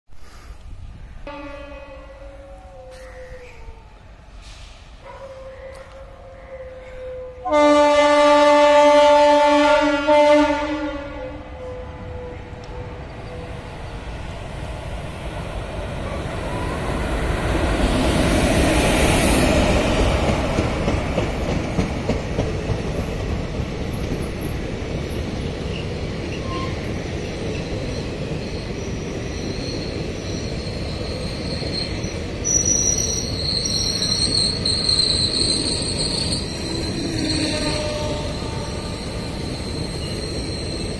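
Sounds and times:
electric train passing: 0.4s - 40.9s
train wheel squeal: 16.1s - 22.1s, 25.1s - 40.9s.

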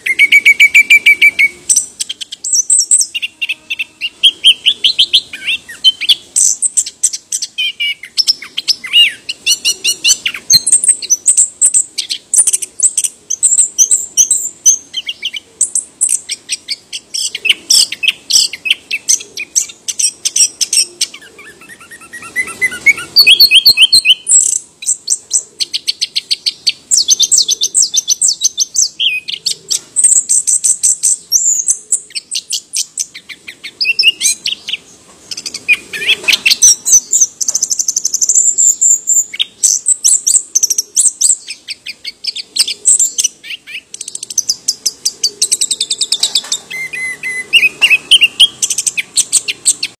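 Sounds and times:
thrush singing trills: 0.0s - 49.9s.

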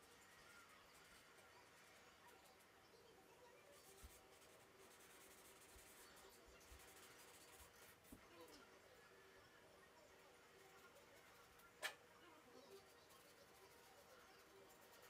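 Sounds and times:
charcoal scratching on paper: 3.6s - 8.2s, 12.6s - 15.0s.

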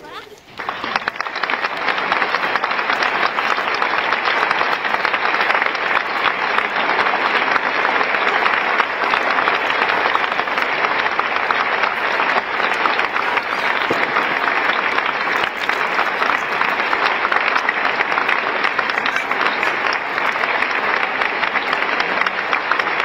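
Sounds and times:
river rushing over stones: 8.2s - 16.9s.

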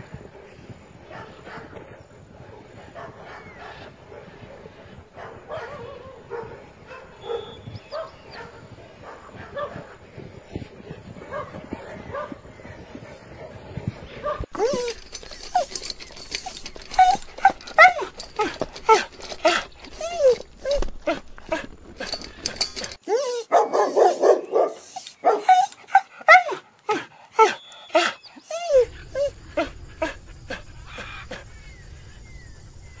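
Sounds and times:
dogs yelping barks: 5.2s - 9.9s, 11.2s - 13.6s, 14.2s - 31.8s
dogs whining: 14.2s - 32.4s.

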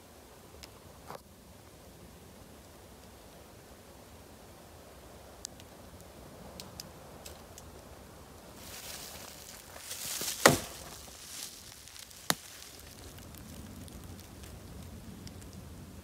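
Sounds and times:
loud sharp knock: 10.4s - 10.9s.

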